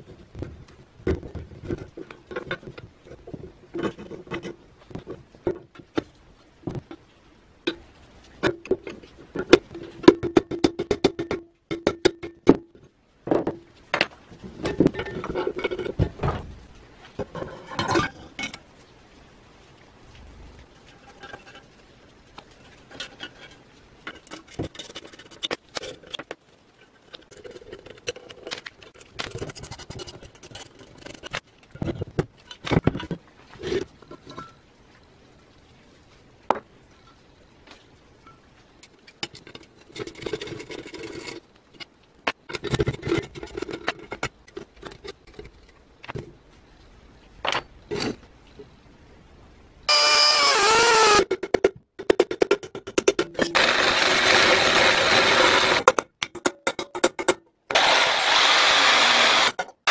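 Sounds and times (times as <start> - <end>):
iron parts clinking and scraping: 13.3 - 16.5.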